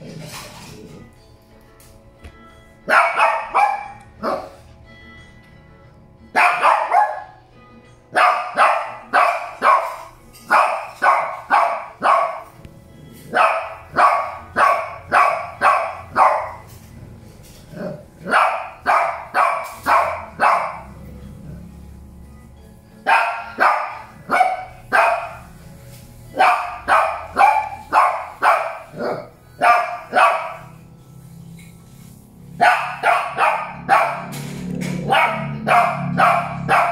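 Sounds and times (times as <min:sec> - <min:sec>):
small dog barking: 0:02.9 - 0:04.5, 0:06.4 - 0:07.3, 0:08.2 - 0:12.5, 0:13.3 - 0:16.6, 0:18.3 - 0:20.8, 0:23.1 - 0:25.4, 0:26.4 - 0:30.7, 0:32.6 - 0:34.3, 0:35.1 - 0:36.9.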